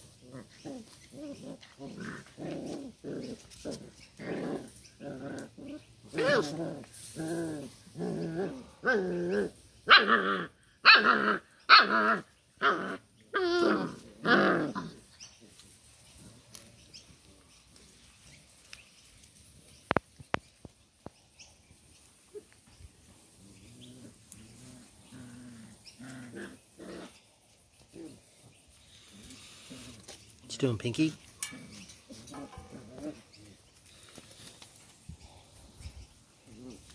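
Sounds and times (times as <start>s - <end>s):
puppies growling and whining: 0.0s - 15.2s, 22.3s - 30.2s, 31.4s - 33.7s.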